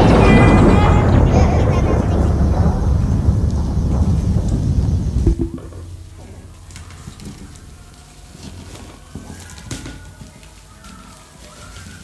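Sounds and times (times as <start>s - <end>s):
steady low hum: 1.7s - 9.1s
bubble wrap crackling: 5.9s - 12.0s.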